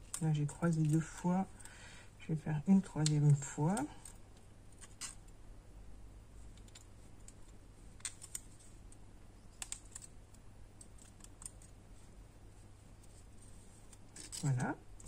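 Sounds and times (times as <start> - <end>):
wire and wooden sticks clicking: 0.0 - 1.7, 6.5 - 11.8.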